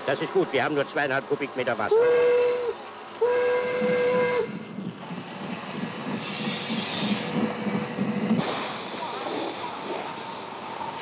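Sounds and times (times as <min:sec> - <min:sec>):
steam locomotive whistle: 0:01.9 - 0:04.7
steam locomotive chuffing: 0:01.9 - 0:10.8
steam hissing: 0:03.4 - 0:11.0.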